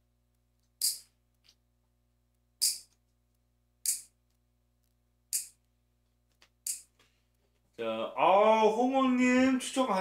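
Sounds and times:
nail clipper clipping fingernails: 0.8s - 1.1s, 2.6s - 3.0s, 3.8s - 4.1s, 5.3s - 5.6s, 6.6s - 6.9s.

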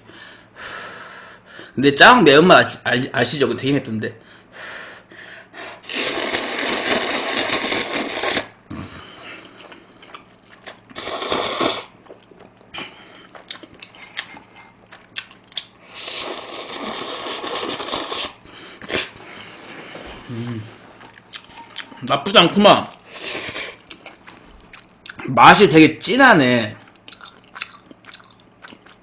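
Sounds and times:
person slurping noodles: 5.8s - 9.2s, 10.7s - 12.0s, 15.9s - 19.2s, 23.1s - 23.8s
wet chewing clicks: 26.8s - 29.0s.

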